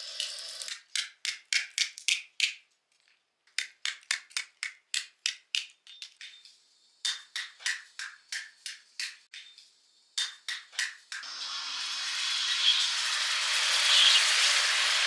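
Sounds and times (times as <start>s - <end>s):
rhythmic wooden clicks music: 0.1s - 2.7s, 3.5s - 11.3s.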